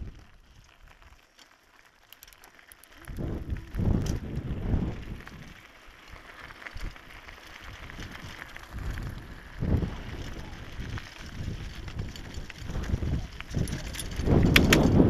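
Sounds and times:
bicycle tyres rumbling: 0.0s - 15.0s
bike clicking: 0.0s - 15.0s
wind buffeting microphone: 3.0s - 5.6s, 7.6s - 15.0s.

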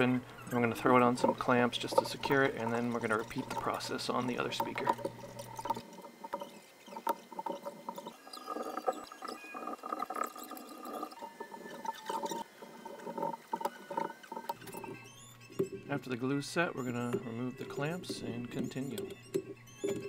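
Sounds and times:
tape pulled off roll squeaking: 0.0s - 20.0s.

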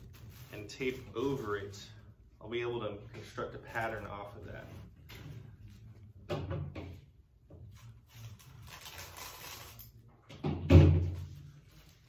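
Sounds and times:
plastic wrap rustling: 0.0s - 2.1s, 7.8s - 10.0s.

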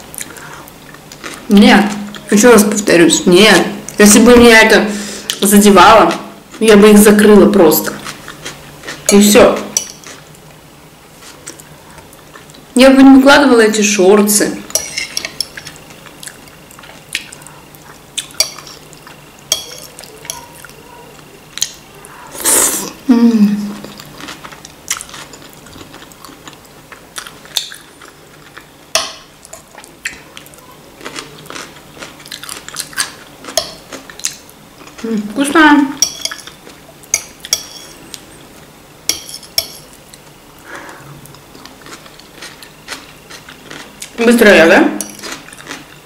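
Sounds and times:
fork clinking on a plate: 14.7s - 15.6s, 18.4s - 18.8s, 19.5s - 20.6s, 36.0s - 38.0s, 39.1s - 39.9s.

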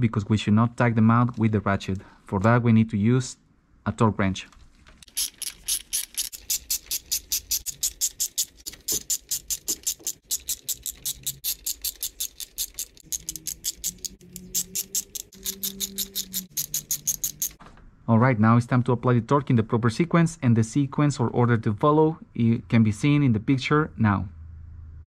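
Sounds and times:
hand ratchet clicking: 5.0s - 17.6s.

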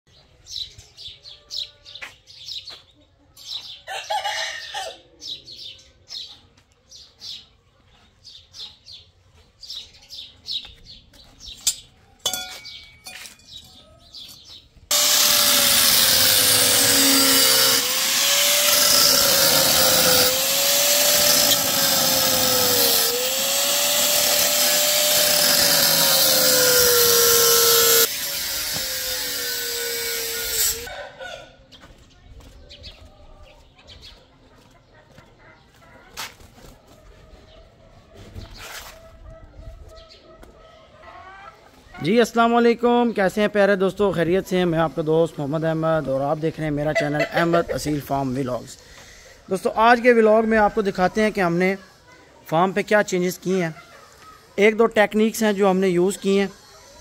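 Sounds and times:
small birds chirping: 0.1s - 14.9s, 31.6s - 42.2s
power tool motor running: 14.9s - 30.9s.

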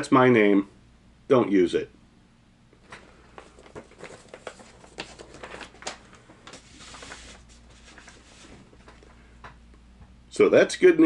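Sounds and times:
paper rustling: 2.8s - 9.2s.

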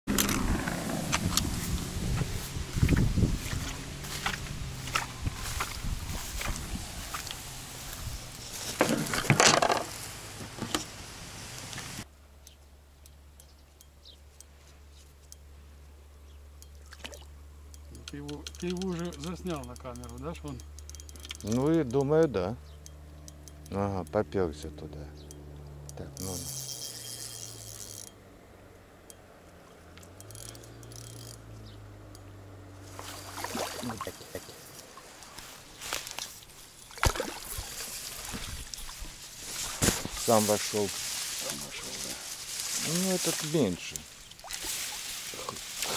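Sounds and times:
reeds rustling: 0.3s - 12.1s, 32.5s - 45.9s
fishing tackle clicking and clattering: 8.6s - 10.0s, 16.5s - 24.2s, 25.1s - 28.2s, 28.8s - 38.9s
water splashing: 16.8s - 17.4s, 32.8s - 45.9s
fishing reel whirring: 18.5s - 22.0s, 25.2s - 28.2s, 29.0s - 31.5s.

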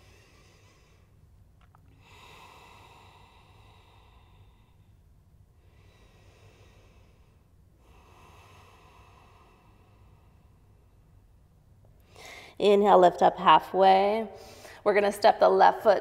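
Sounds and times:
slow deep breathing: 0.0s - 12.6s
low steady hum: 0.0s - 16.0s.

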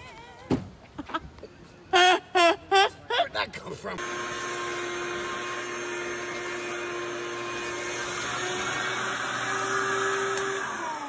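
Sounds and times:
electric motor whine: 4.0s - 11.0s.

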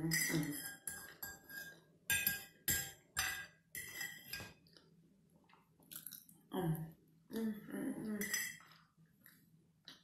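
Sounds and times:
fork scraping against plate: 0.1s - 2.5s, 3.2s - 4.5s.

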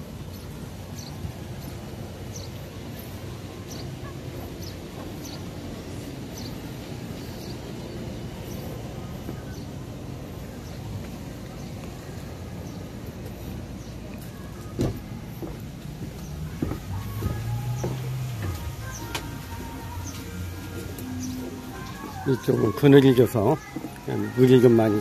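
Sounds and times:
steady low rumble: 0.0s - 22.5s.

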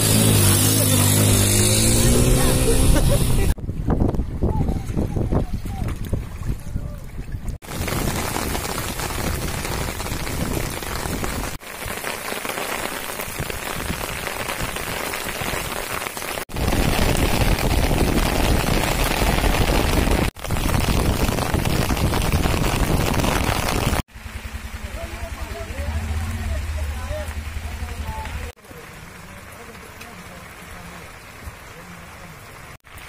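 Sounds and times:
rain on water and wet road: 0.0s - 3.6s, 7.6s - 33.0s
deep rumble: 16.6s - 28.6s.

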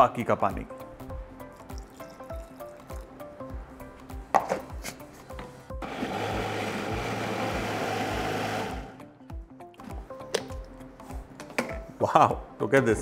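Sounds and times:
background music with beat: 0.6s - 13.0s
mixer grinder running: 5.8s - 9.0s.

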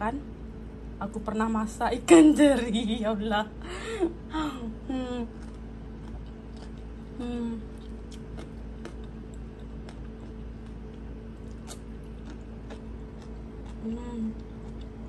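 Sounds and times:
steady low hum: 0.0s - 15.0s
person chewing crunchy food: 5.3s - 15.0s.

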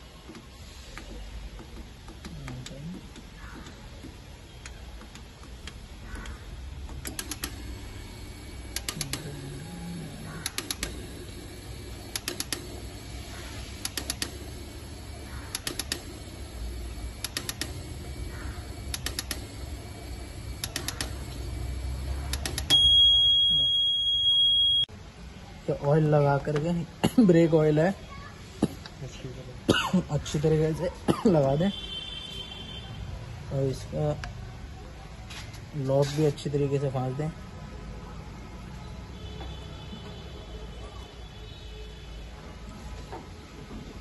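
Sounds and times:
fuel injectors clicking: 0.2s - 23.5s
low machine hum: 5.9s - 24.9s
long electronic beep: 22.7s - 24.9s.

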